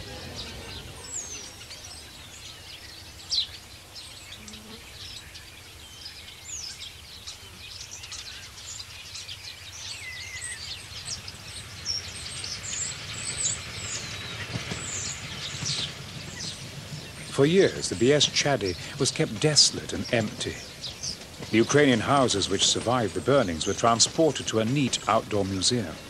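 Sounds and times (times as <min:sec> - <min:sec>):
low outdoor rumble: 0:00.0 - 0:26.0
small birds chirping: 0:00.0 - 0:26.0.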